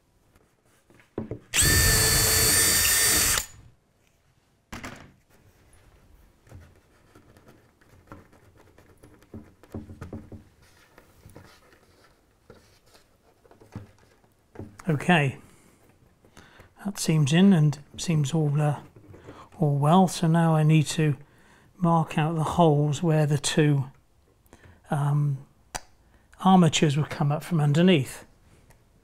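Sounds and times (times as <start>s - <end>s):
cordless drill whining: 1.5s - 3.7s
faint taps and rustles: 5.0s - 14.9s.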